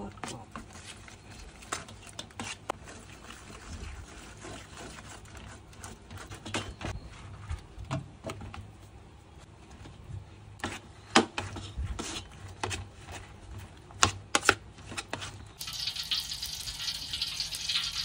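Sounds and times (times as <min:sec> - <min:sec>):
spoon stirring thick batter: 0:00.2 - 0:07.0.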